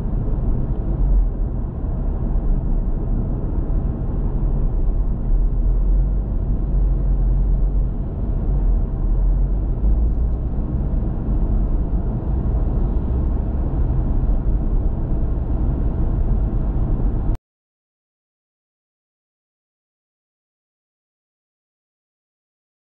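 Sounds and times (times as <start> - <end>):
car engine rumble: 0.0 - 17.4
tyre road noise: 0.0 - 17.4.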